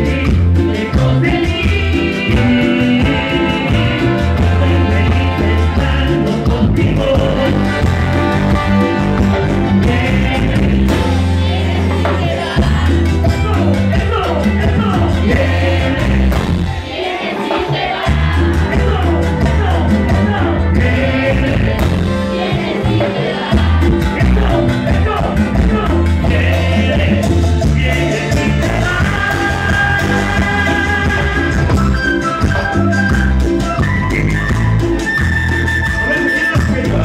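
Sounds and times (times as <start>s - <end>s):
person singing: 0.0s - 16.6s, 17.3s - 32.9s
pulsing bass line: 0.0s - 16.9s, 17.8s - 37.0s
live latin dance band: 0.0s - 37.0s.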